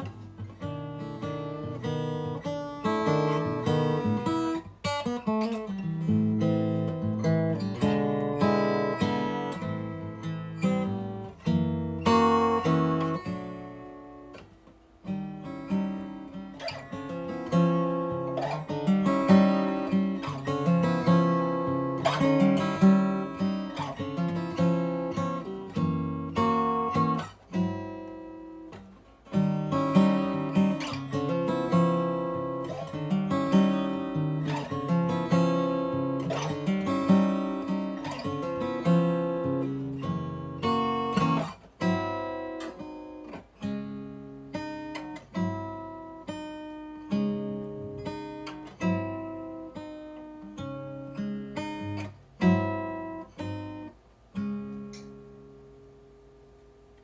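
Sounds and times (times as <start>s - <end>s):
acoustic guitar playing: 0.0s - 57.0s.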